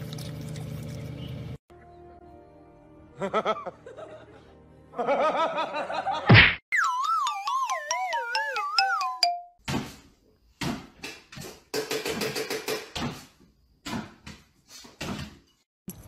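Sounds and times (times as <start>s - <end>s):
descending warbling whistle: 6.7s - 9.3s.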